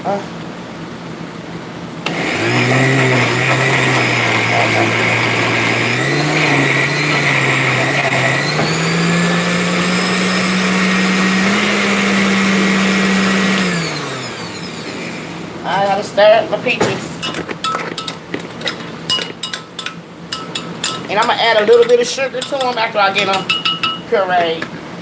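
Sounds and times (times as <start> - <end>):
blender motor pureeing fruit: 2.0 - 15.2.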